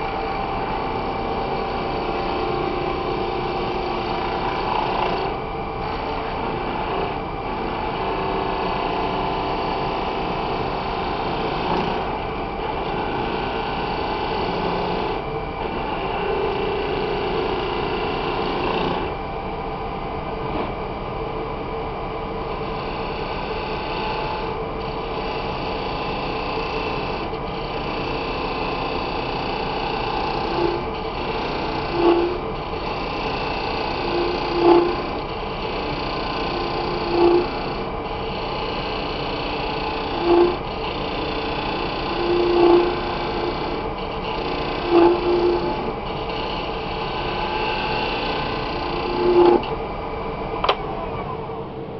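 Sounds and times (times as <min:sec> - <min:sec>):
chisel scraping spinning wood: 0:00.0 - 0:19.2, 0:22.5 - 0:49.7
wood lathe running: 0:00.0 - 0:19.2, 0:22.3 - 0:49.8.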